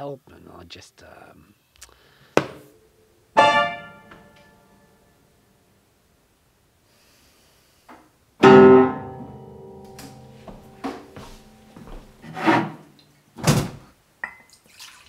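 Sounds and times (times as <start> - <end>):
loud piano chord: 3.4 - 4.9, 8.4 - 11.8.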